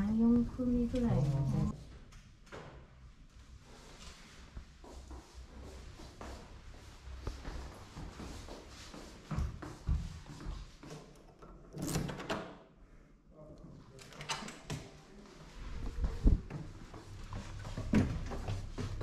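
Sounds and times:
door opening with knocks: 11.4s - 12.6s.

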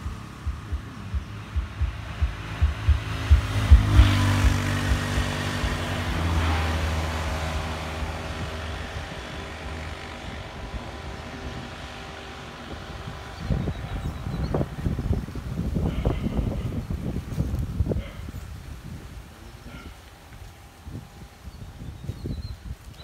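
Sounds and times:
vehicle engine running: 0.0s - 18.0s
wind buffeting microphone: 0.0s - 23.0s.

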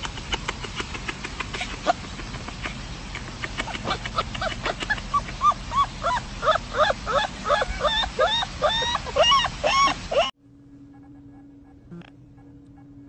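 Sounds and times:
puppy yipping: 3.5s - 10.3s.

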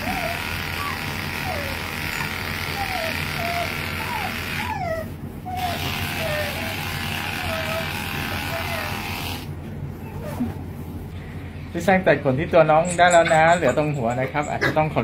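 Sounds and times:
electric clippers running: 0.0s - 4.7s, 5.6s - 9.5s
dog whimpering: 0.0s - 9.4s, 10.0s - 10.7s, 12.8s - 15.0s.

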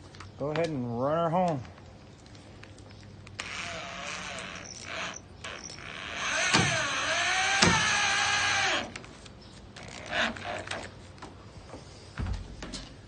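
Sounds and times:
cordless drill driving a screw: 3.4s - 9.0s.

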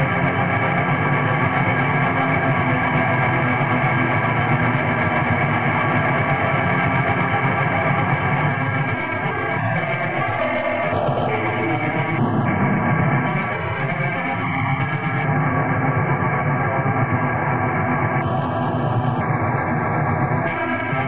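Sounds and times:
distorted guitar: 0.0s - 21.0s
tremolo-picked distorted bass: 0.0s - 21.0s.

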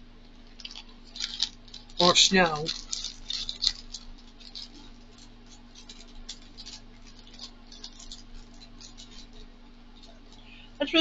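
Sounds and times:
steady low hum: 0.0s - 11.0s
plastic packet rustling and clicking: 0.2s - 10.7s.

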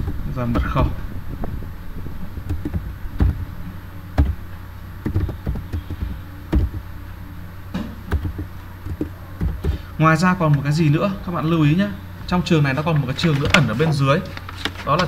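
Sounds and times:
steady low hum: 0.0s - 15.0s
keyboard typing clicks: 8.1s - 9.8s.

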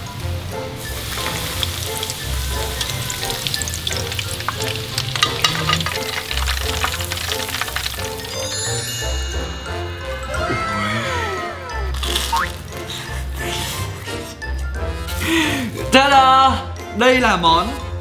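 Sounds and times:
food deep-frying in oil: 0.0s - 9.2s, 12.0s - 12.8s.

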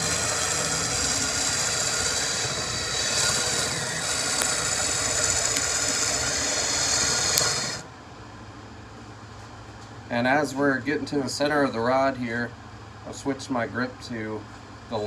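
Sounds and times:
electric drill shaving wood: 0.0s - 7.9s
faint background hum: 0.0s - 15.0s.

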